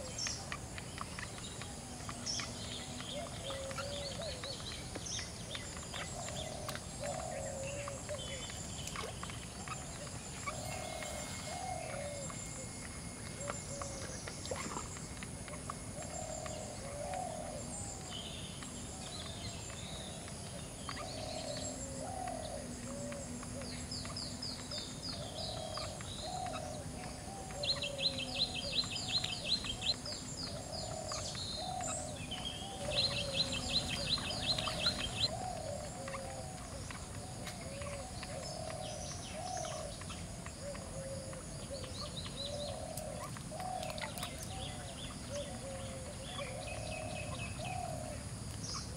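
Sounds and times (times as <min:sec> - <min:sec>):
birds calling low repeated notes: 0:00.0 - 0:48.9
high-pitched bird trill: 0:10.4 - 0:13.8.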